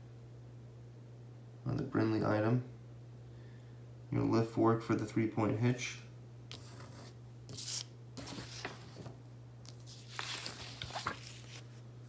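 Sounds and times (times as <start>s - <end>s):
paper pages rustling: 6.5s - 11.8s.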